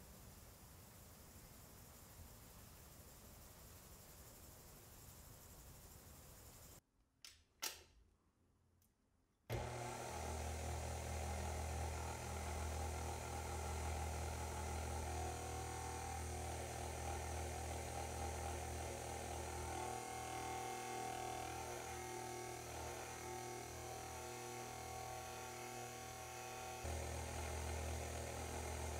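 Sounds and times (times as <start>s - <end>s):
stand mixer motor humming: 9.5s - 28.9s.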